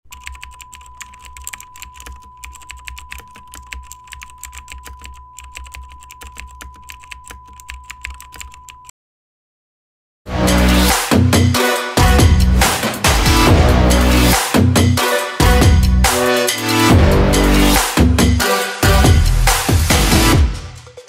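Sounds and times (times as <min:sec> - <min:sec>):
electronic music with heavy beat: 0:10.3 - 0:21.0.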